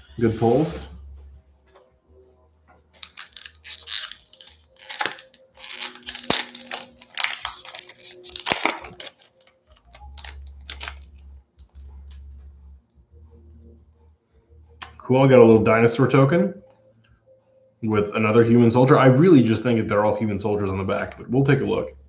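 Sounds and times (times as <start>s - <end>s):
foil wrapper crinkling and tearing: 3.0s - 11.2s.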